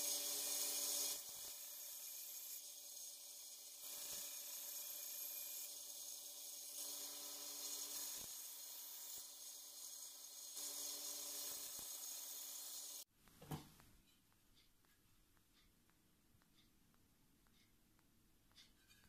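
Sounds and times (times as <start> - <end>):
belt grinder grinding metal: 0.0 - 13.0.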